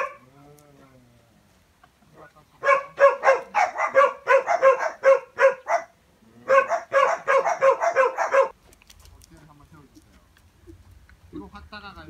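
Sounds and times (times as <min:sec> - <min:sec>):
dog barking: 0:00.0 - 0:00.3, 0:02.6 - 0:08.6.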